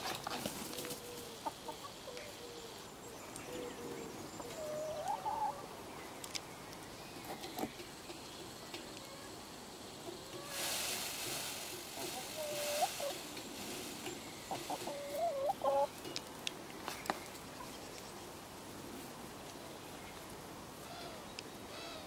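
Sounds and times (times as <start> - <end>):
hens clucking: 0.0 - 6.4, 7.2 - 17.8
rustling hiss: 0.0 - 22.0.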